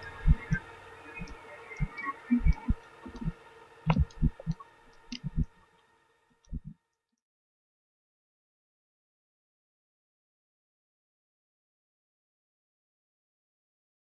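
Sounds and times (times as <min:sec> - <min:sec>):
steady hum: 0:00.0 - 0:06.8
low thuds: 0:00.1 - 0:00.6, 0:03.9 - 0:05.5, 0:06.5 - 0:06.7.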